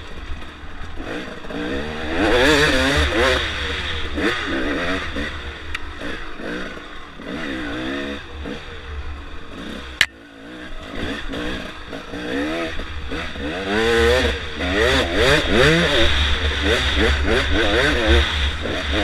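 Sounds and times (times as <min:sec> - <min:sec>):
dirt bike engine revving: 0:00.0 - 0:19.0.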